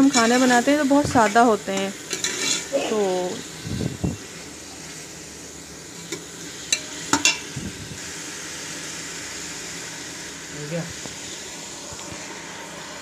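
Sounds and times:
meat sizzling in hot oil: 0.0 - 13.0.

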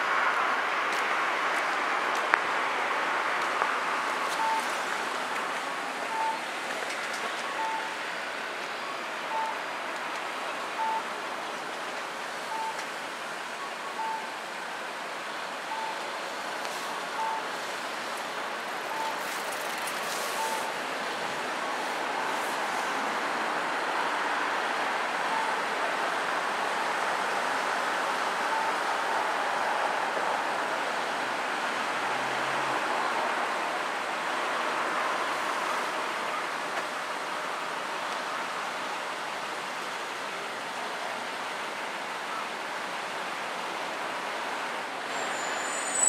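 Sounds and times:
road traffic noise: 0.0 - 46.0
electronic beep: 4.3 - 4.7, 6.1 - 6.4, 7.5 - 8.0, 9.3 - 9.6, 10.8 - 11.0, 12.5 - 12.8, 14.0 - 14.3, 15.7 - 16.0, 17.2 - 17.4, 18.9 - 19.2, 20.4 - 20.7.

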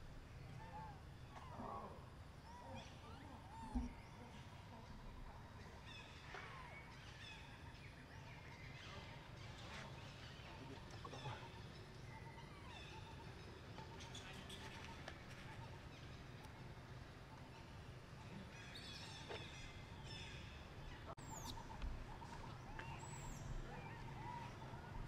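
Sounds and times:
animal chirps and squeaks: 21.2 - 24.4.

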